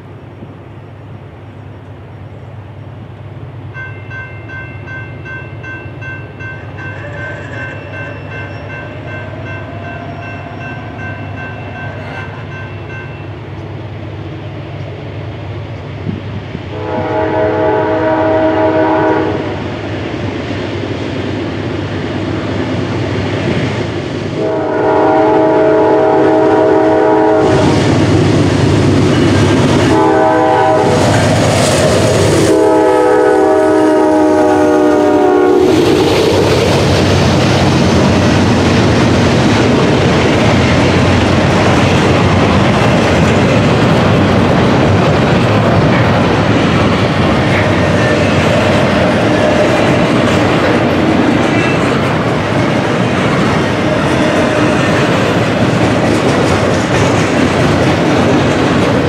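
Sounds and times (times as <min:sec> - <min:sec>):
locomotive engine and wheels: 0:00.0 - 0:59.0
locomotive air horn: 0:16.7 - 0:19.6, 0:24.4 - 0:27.7, 0:29.9 - 0:31.1, 0:32.4 - 0:35.8
freight cars rumbling and clattering: 0:36.2 - 0:59.0.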